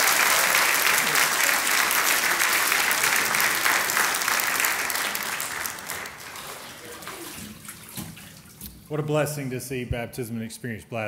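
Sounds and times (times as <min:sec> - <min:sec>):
congregation applauding: 0:00.0 - 0:07.6.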